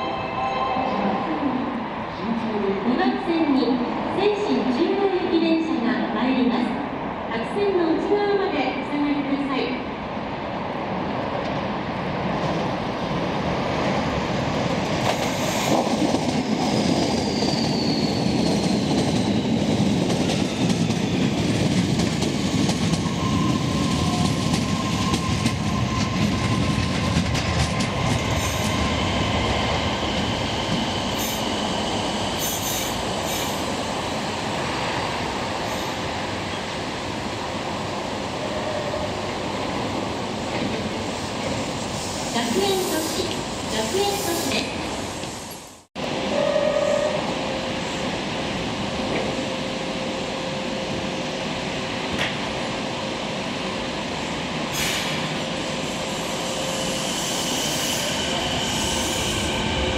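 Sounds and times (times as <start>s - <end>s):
subway train rumbling: 0.0s - 59.9s
wheel squeal: 17.1s - 19.4s.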